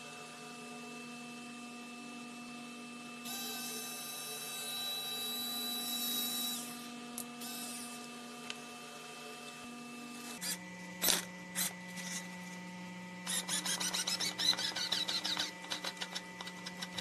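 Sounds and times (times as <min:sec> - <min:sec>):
electric screwdriver motor whining: 0:03.3 - 0:08.0, 0:13.2 - 0:17.0.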